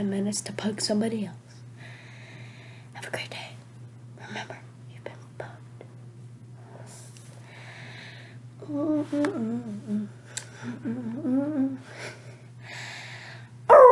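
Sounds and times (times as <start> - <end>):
person humming: 8.6 - 12.2.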